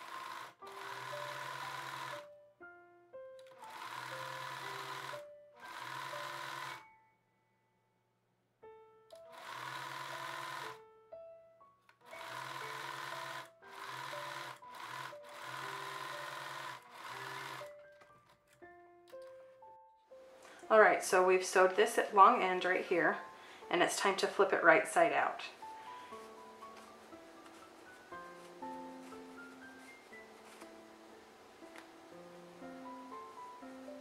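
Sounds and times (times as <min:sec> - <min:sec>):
sewing machine stitching: 0:00.0 - 0:02.3, 0:03.5 - 0:06.9, 0:09.2 - 0:10.8, 0:12.1 - 0:18.3
background music: 0:00.0 - 0:08.0, 0:08.6 - 0:34.0.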